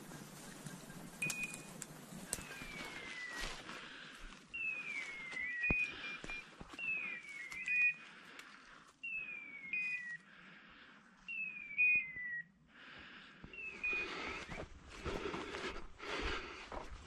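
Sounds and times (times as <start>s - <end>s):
short steady beeps: 1.2s - 1.7s
falling whistle-like beeper call: 2.4s - 3.7s, 4.6s - 8.2s, 9.0s - 10.4s, 11.3s - 12.6s.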